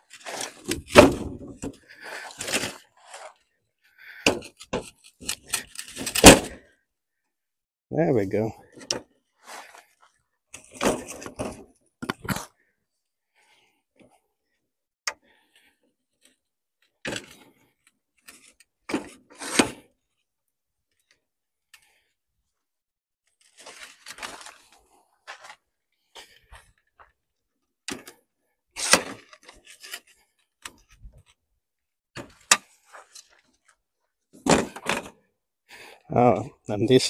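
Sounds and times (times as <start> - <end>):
handling rustles: 23.4 - 27.1.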